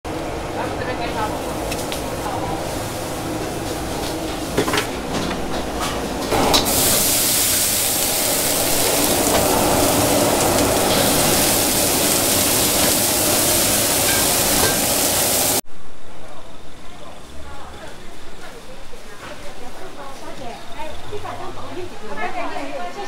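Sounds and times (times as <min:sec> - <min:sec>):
loud steady hiss: 0:06.3 - 0:16.1.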